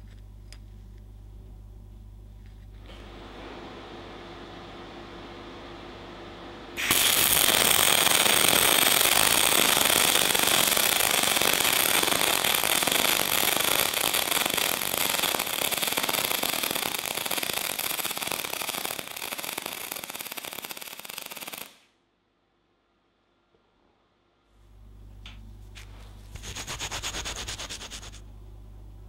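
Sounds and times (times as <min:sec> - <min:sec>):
welding arc crackling: 0:06.8 - 0:21.9.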